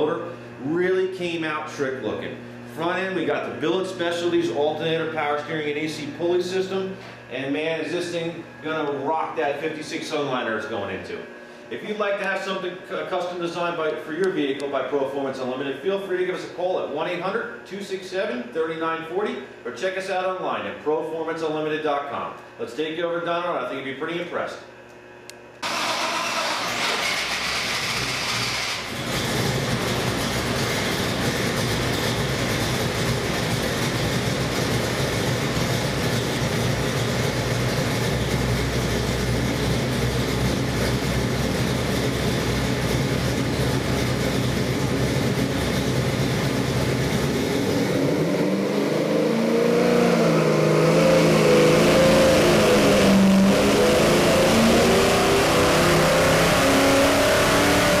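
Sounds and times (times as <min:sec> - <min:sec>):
engine idling and revving: 0:25.6 - 0:58.0.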